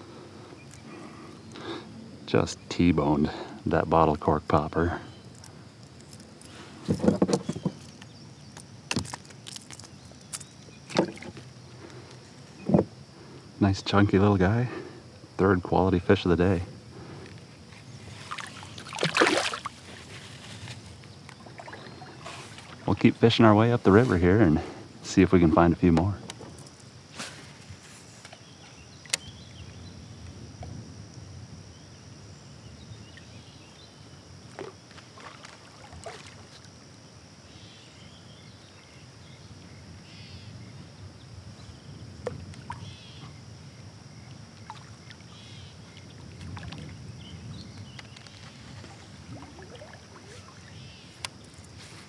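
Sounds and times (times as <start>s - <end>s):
paddle in water: 5.0s - 13.5s, 16.8s - 29.6s, 34.4s - 36.9s, 42.1s - 52.0s.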